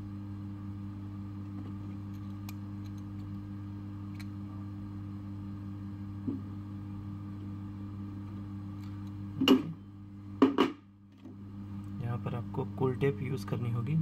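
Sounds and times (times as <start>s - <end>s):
low electrical hum: 0.0s - 14.0s
clattering knocks on workbench: 10.4s - 10.8s.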